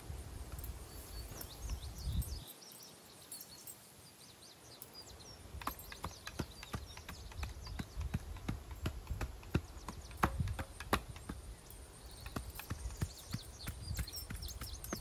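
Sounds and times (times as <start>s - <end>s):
sharp taps and knocks: 5.6s - 11.5s, 12.2s - 15.0s.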